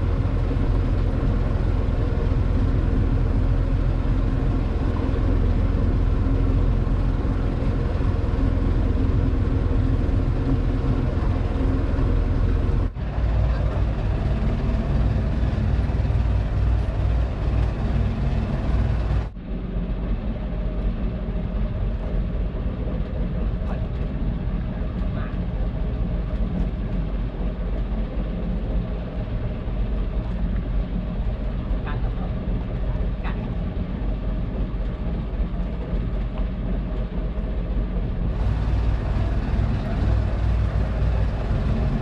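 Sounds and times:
sea and wind hiss: 0.0s - 24.7s, 37.7s - 42.0s
boat engine drone: 0.0s - 42.0s.

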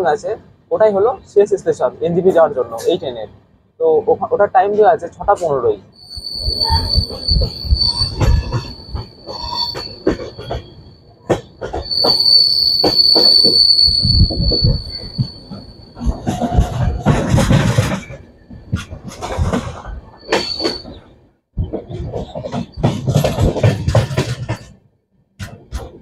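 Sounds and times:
train wheel squeal: 5.9s - 24.6s
wheels clacking over rail joints: 6.0s - 21.1s, 21.7s - 24.8s
train coach rumble: 6.0s - 24.8s.

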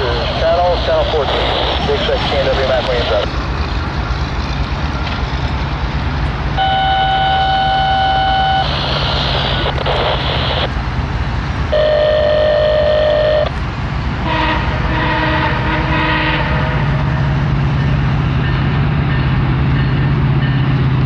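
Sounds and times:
low diesel rumble: 0.0s - 21.0s
locomotive air horn blasts: 6.6s - 8.7s, 11.7s - 13.5s, 14.2s - 17.1s.

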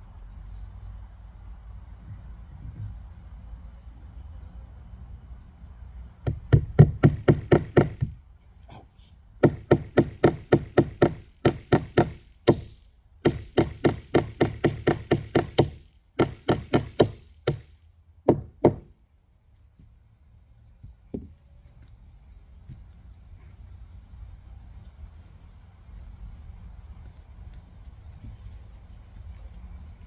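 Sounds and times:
hammer driving nails: 6.2s - 8.2s, 9.4s - 18.9s.

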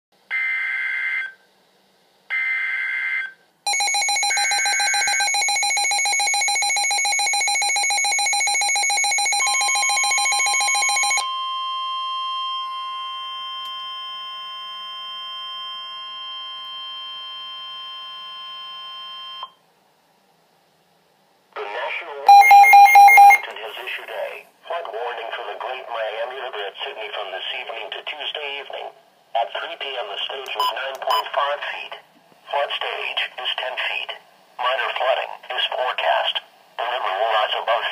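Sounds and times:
rapid pulsing alert beep: 3.7s - 11.2s, 22.3s - 23.4s
steady warning alarm tone: 3.7s - 19.4s, 22.3s - 23.4s
screeching digital data bursts: 4.2s - 5.6s.

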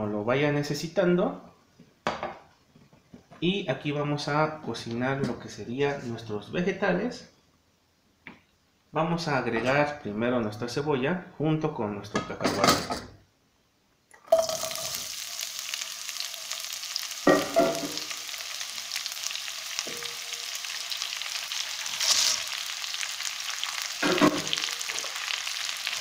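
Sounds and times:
onion sizzling in oil: 14.3s - 26.0s
peanuts clattering into pan: 21.7s - 23.1s.

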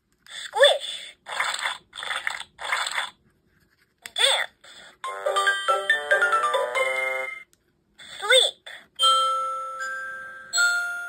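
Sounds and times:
tinkling tune: 5.0s - 7.4s, 9.0s - 11.0s.

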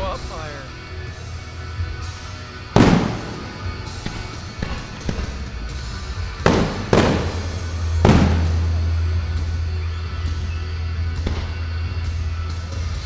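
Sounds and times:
firework shells bursting: 2.7s - 5.8s, 6.4s - 9.1s.

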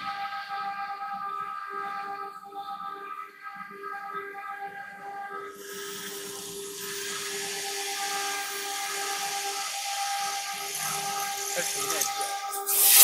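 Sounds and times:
router spindle whine: 5.6s - 12.7s
loud hiss: 5.6s - 13.0s.

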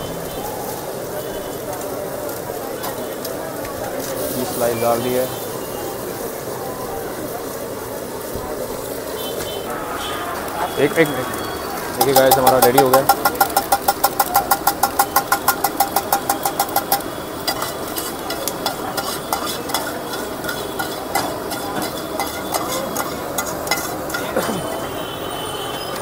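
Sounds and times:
metal spatula striking a pan: 12.0s - 24.4s
spatula scraping in a pan: 12.1s - 24.8s.

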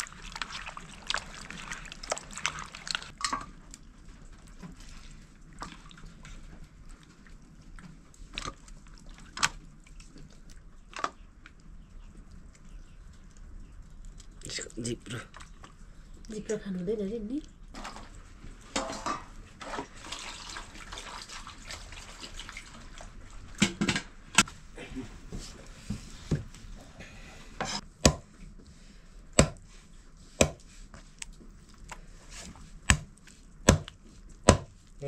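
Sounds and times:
soft rustling: 24.5s - 27.8s
knife chopping on wooden block: 28.0s - 28.3s, 29.4s - 29.6s, 30.4s - 30.6s, 33.7s - 34.7s.

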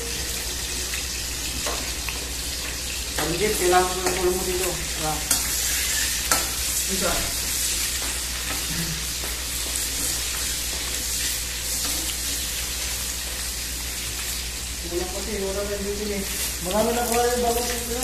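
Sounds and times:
garlic and onion sizzling in oil: 0.0s - 18.0s
metal spoon scraping a pan: 5.2s - 8.7s.

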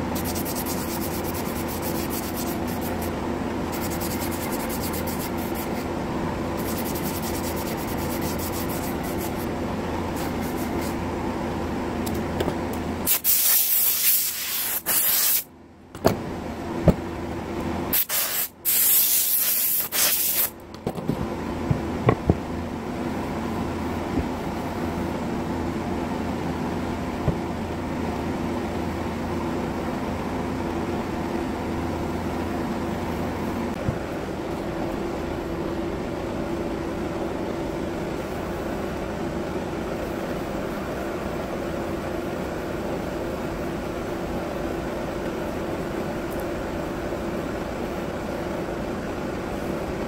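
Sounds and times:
machine hum: 0.0s - 13.1s
compressed air blasts: 13.1s - 15.5s, 17.9s - 20.5s.

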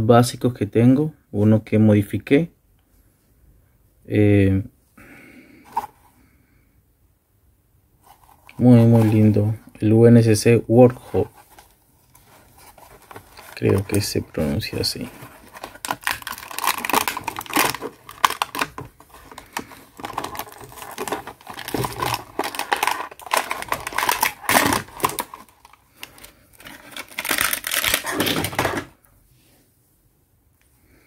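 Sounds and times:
blister pack crackling and rustling: 11.1s - 28.9s.

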